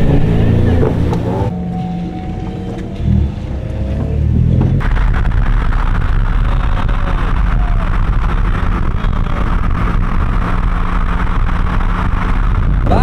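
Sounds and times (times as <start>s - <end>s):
car engine at low revs: 0.0s - 13.0s
road and wind noise: 0.0s - 13.0s.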